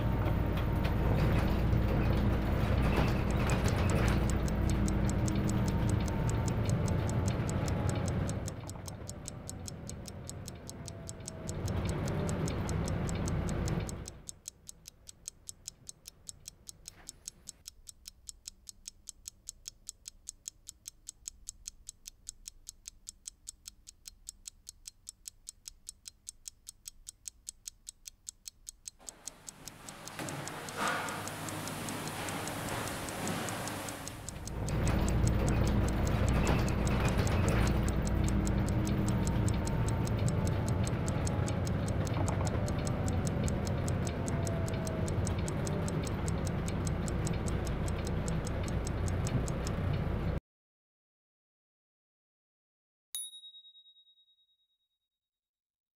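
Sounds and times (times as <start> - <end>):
city bus running: 0.0 - 14.2, 29.1 - 50.4
clock ticking fast: 0.0 - 50.4.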